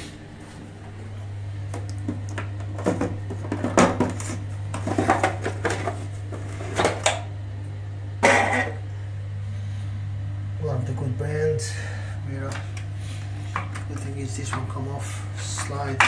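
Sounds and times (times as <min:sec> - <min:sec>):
steady low hum: 0:00.0 - 0:16.0
hard objects clattering: 0:02.1 - 0:07.2.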